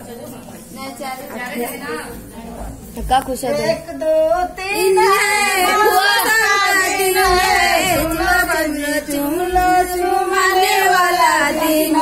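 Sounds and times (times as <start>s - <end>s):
women singing in unison: 3.6s - 12.0s.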